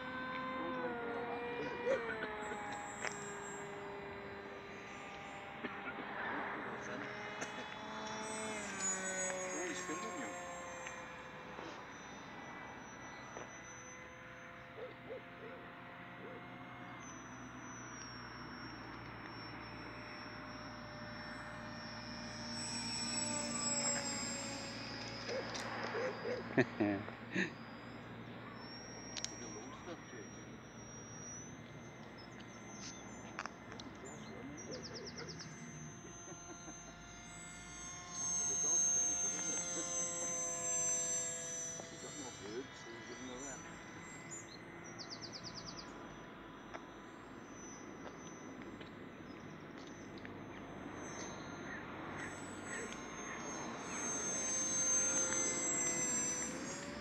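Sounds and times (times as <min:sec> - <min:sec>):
model jet engine whine: 0:00.0 - 0:57.0
bird hooting: 0:05.8 - 0:18.6, 0:23.2 - 0:38.1, 0:50.5 - 0:57.0.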